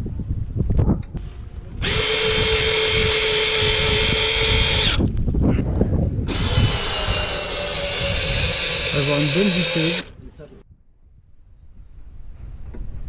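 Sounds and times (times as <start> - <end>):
drill driving screws: 1.8 - 5.1, 6.3 - 10.1.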